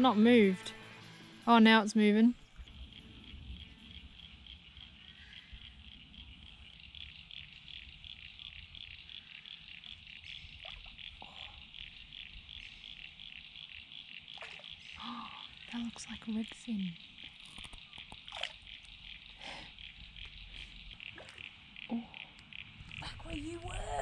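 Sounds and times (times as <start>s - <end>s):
frogs chirping: 0.0s - 24.0s.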